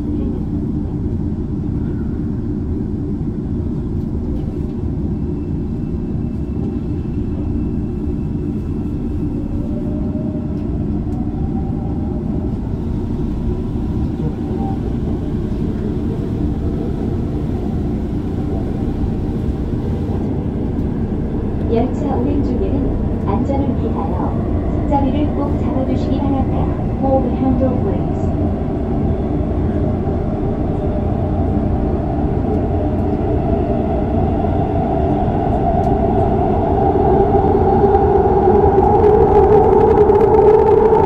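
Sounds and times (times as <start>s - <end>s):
train motor whine rising: 37.7s - 41.0s.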